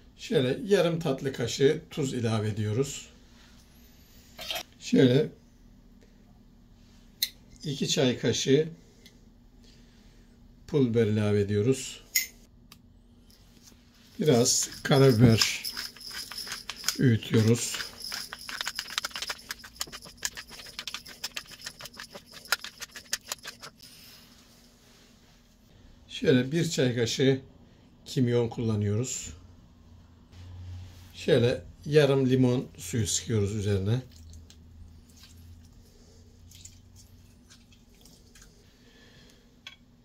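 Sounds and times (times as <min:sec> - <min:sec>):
pepper mill grinding clicks: 0:14.6 - 0:23.8.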